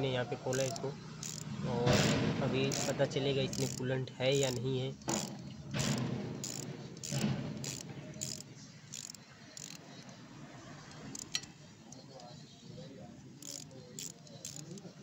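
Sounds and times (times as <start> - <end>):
hand tool metal clicks and scraping: 0.5 - 10.2, 10.9 - 11.6, 13.4 - 14.9.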